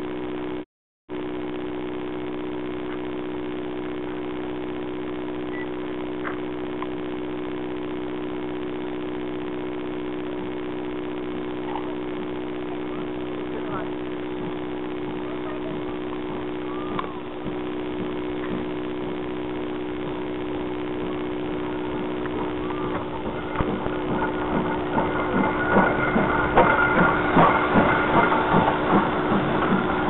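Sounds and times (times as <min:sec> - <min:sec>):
steam locomotive passing: 0:20.6 - 0:30.0.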